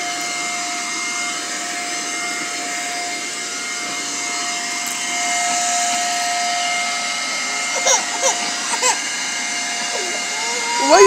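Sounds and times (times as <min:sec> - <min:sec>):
vacuum cleaner on carpet: 0:00.0 - 0:11.0.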